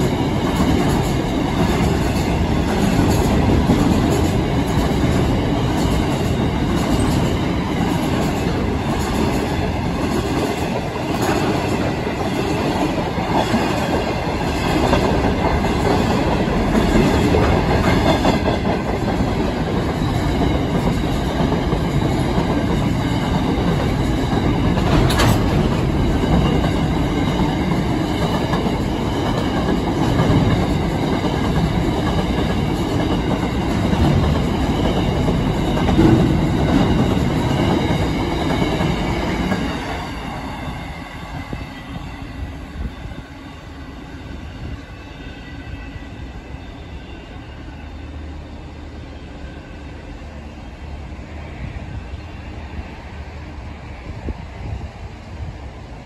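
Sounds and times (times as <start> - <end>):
freight train rumbling past: 0.0 - 56.0.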